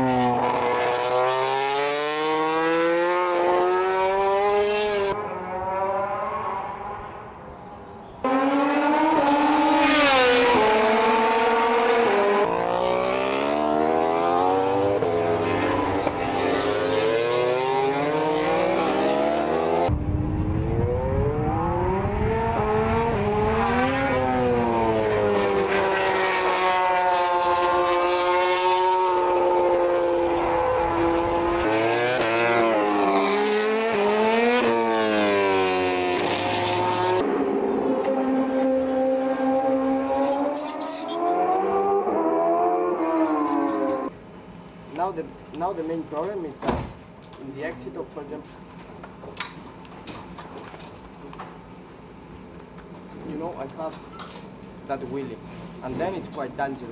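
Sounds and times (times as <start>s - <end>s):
racing motorcycle engine passing: 0.0s - 7.4s, 8.2s - 44.1s.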